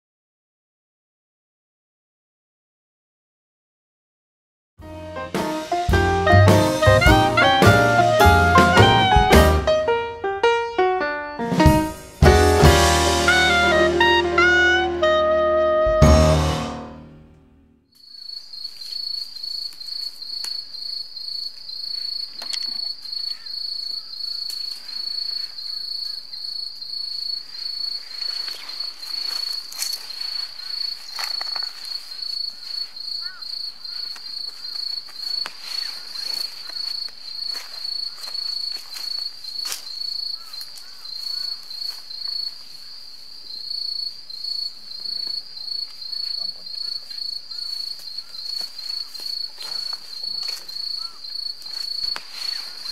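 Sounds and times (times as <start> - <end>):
insect chirping trill: 18.0 - 52.9.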